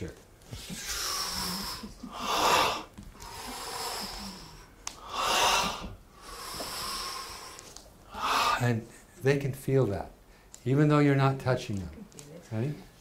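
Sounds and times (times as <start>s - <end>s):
forceful blowing exhalation: 0.7s - 8.8s
man breathing deeply: 0.8s - 8.7s.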